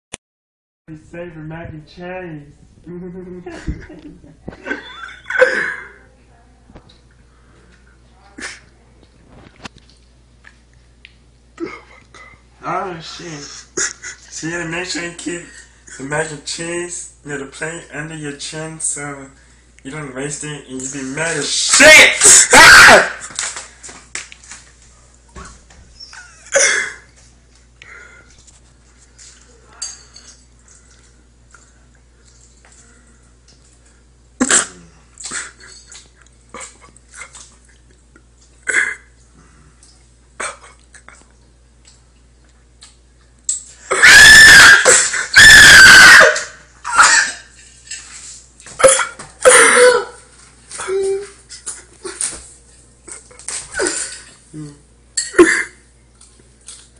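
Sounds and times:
person shrieking and yelping: 0:21.8 - 0:23.2, 0:43.9 - 0:47.4.

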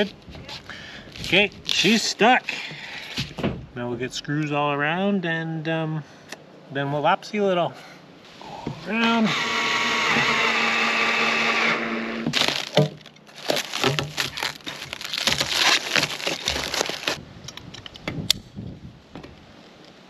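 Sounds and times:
cordless drill running: 0:09.0 - 0:12.3
plastic bag crinkling: 0:12.3 - 0:17.2.

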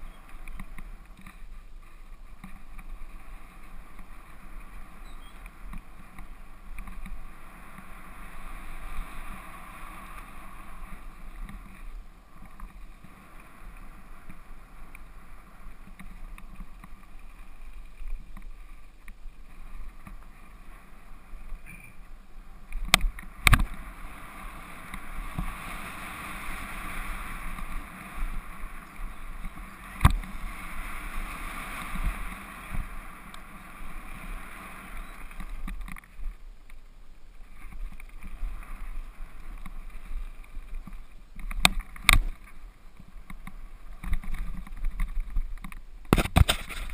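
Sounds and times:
tyres on gravel: 0:00.0 - 0:46.9
wind: 0:00.0 - 0:46.9
bike knocking over bumps: 0:44.0 - 0:46.9.

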